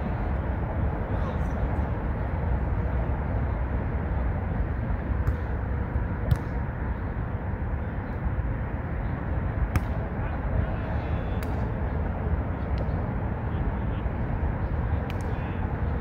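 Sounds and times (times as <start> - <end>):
low rumble of traffic: 0.0 - 16.0
volleyball slaps: 5.2 - 5.5, 6.2 - 6.6, 9.7 - 10.0.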